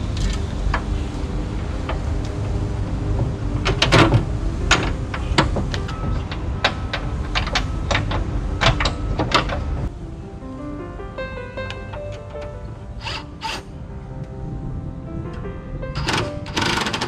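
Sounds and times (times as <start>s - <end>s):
metal knocks and clanks: 1.8s - 9.9s.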